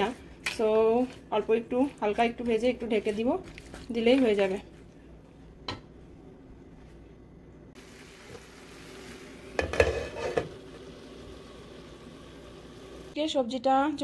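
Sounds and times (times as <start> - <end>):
vegetables sizzling in frying pan: 7.8 - 13.2.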